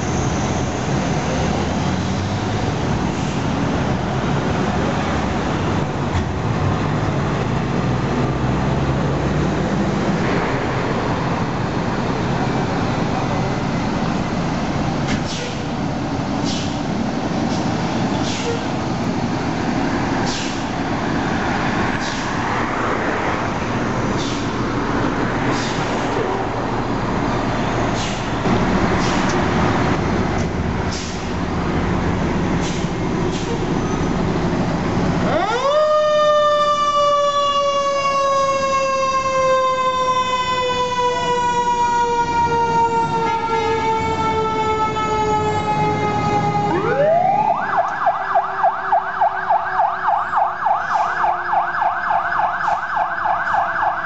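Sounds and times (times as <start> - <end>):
fire engine motor running: 0.0 - 54.0
warbling yelp siren: 35.3 - 54.0
siren winding up and falling: 41.7 - 54.0.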